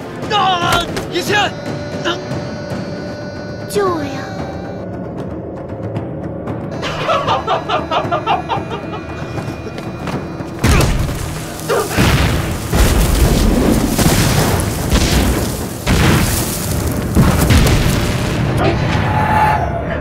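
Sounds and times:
woman laughing: 6.8s - 9.8s
explosions with deep rumbling blasts: 10.6s - 19.6s.

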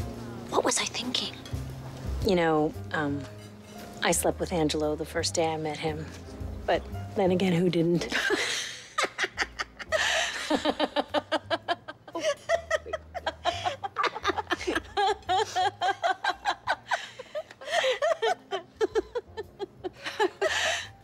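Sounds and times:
women laughing: 8.1s - 21.0s.

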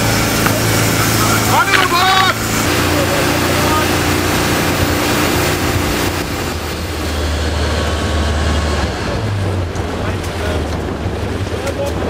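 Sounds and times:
boat engine humming: 0.0s - 12.0s
water rushing past hull: 0.0s - 12.0s.

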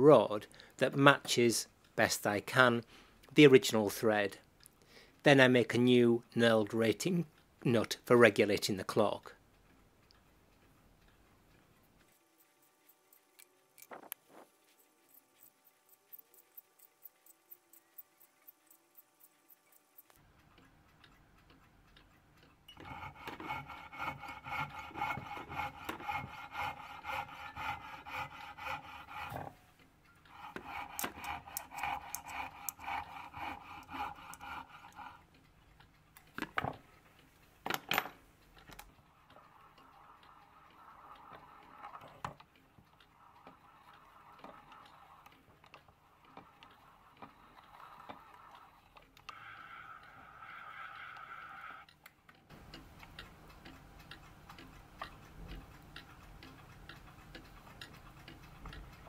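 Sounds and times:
lathe cutting metal: 22.8s - 29.4s.

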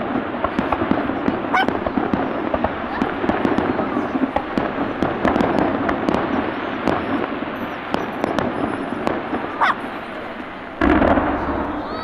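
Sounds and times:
fireworks crackling and popping: 0.0s - 12.0s
loud firework burst: 0.0s - 12.0s.

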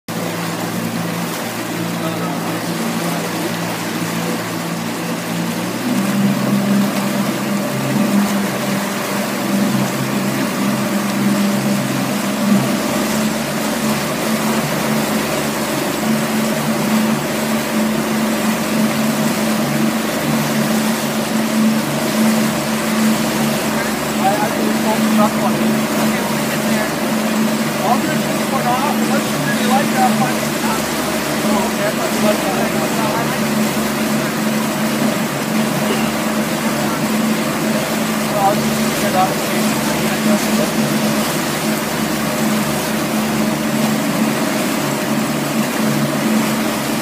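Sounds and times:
outboard motor running: 0.0s - 47.0s
hiss of boat wake: 0.1s - 47.0s.

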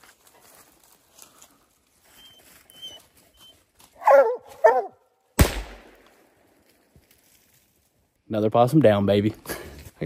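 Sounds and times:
hounds barking: 4.0s - 5.0s.

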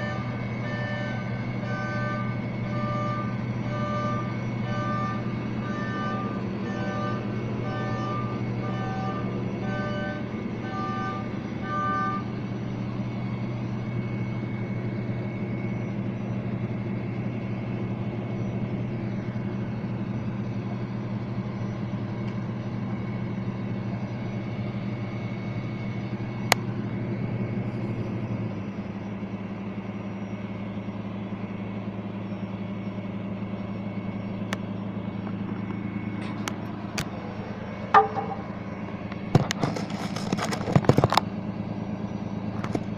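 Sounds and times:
reversing beeper: 0.0s - 40.8s
truck engine idling: 0.0s - 42.9s.

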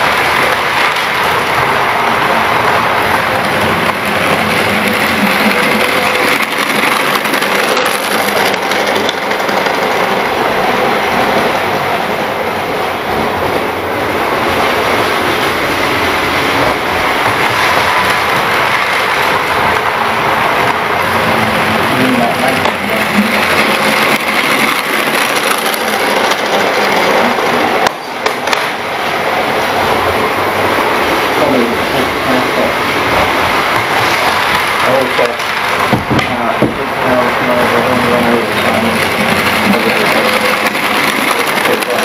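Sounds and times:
model train motor hum: 0.0s - 10.9s, 15.7s - 27.9s, 37.0s - 42.0s
train wheels rolling over rails: 0.0s - 42.0s.

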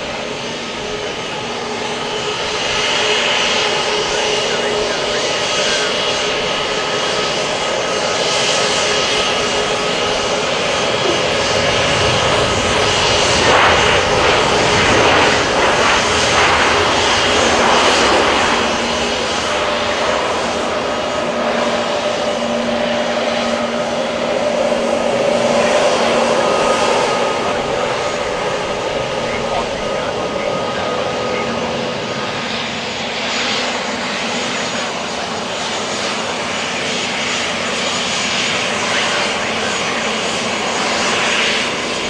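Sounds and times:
airliner jet noise: 0.0s - 42.0s
jet engines whining at taxi: 0.0s - 42.0s.

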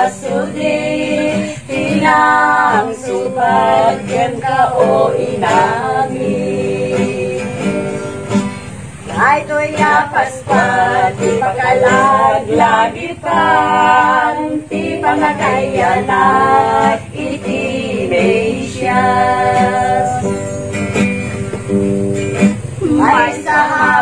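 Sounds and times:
women singing a carol: 0.0s - 21.0s, 22.5s - 24.0s
acoustic guitar: 0.0s - 24.0s.

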